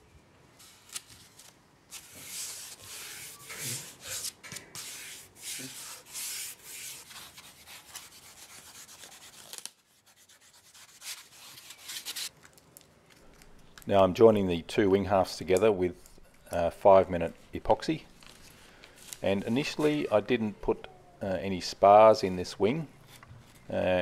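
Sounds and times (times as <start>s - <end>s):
packing tape rubbed by hand: 0.6s - 12.3s.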